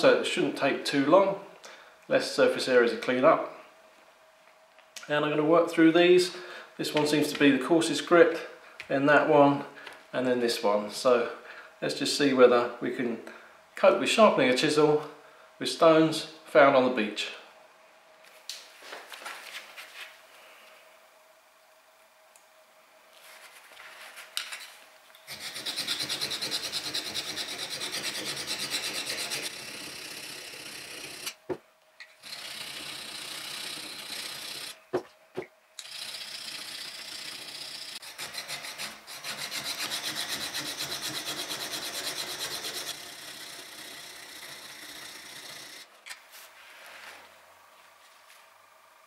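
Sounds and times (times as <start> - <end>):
chisel rasping on sandstone: 25.3 - 31.3.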